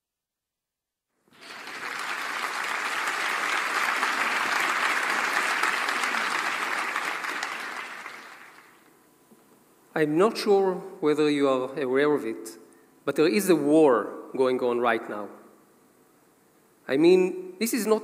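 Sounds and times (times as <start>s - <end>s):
audience applauding: 1.3s - 8.8s.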